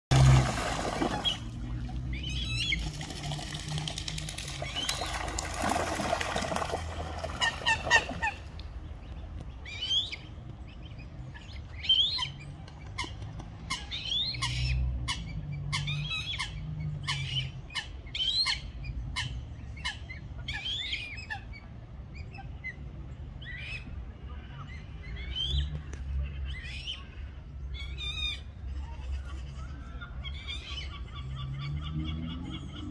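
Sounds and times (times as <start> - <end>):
splashing and wing-beating: 0.1 - 8.8.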